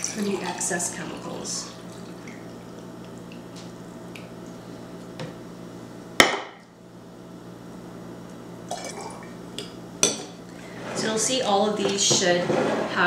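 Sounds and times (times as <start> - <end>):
glassware clinking: 10.0 - 10.4.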